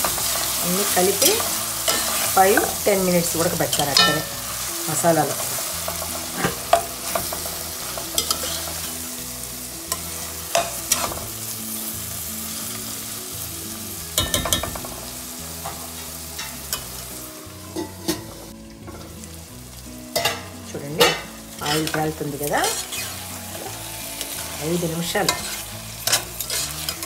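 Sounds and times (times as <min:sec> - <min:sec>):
metal spoon scraping pan: 0:00.0 - 0:09.0, 0:20.2 - 0:27.0
food sizzling in oil: 0:00.0 - 0:27.0.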